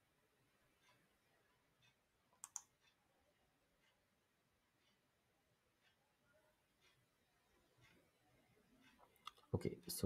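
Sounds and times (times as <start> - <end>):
faint mouse clicks: 1.8 - 3.0.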